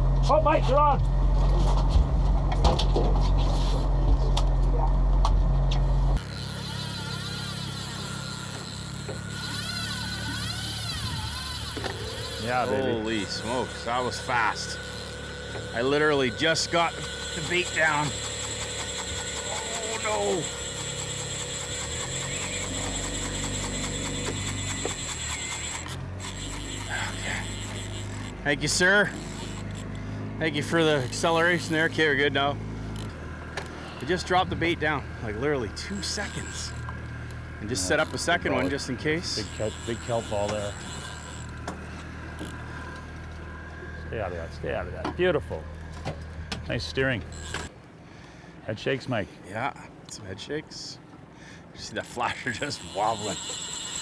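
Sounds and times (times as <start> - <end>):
outboard motor running: 0.0 - 48.6, 49.8 - 54.0
wind: 0.0 - 54.0
thin wavering whine: 5.9 - 47.7
gear clicks: 6.2 - 30.0, 35.8 - 43.1, 47.1 - 47.7, 52.0 - 54.0
fishing reel ticking rapidly: 6.2 - 33.1, 34.1 - 41.6, 42.4 - 42.6, 46.9 - 47.7, 52.0 - 54.0.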